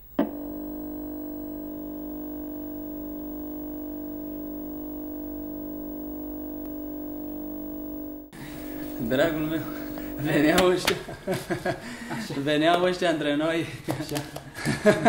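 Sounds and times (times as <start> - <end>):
steady low synth drone: 0.4 - 10.6.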